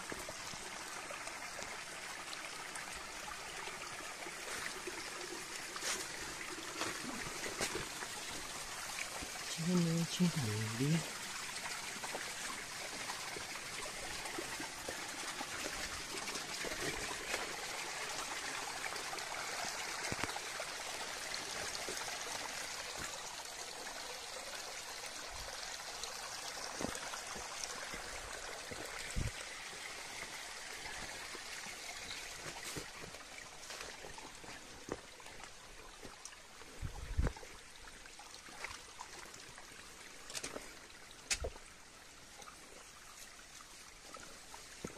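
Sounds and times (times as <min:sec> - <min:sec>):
water trickling: 0:00.0 - 0:44.9.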